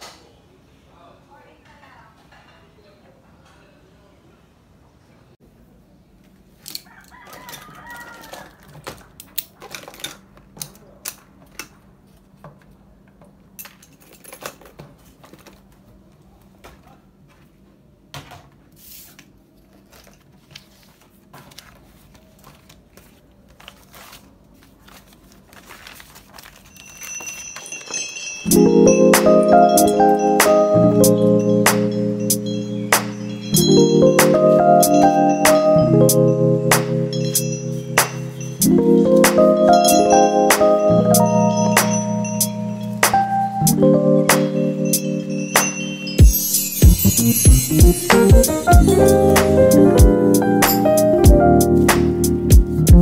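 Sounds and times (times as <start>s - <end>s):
rooster crowing: 6.8s - 9.1s
paper sheets rustling: 18.7s - 28.4s.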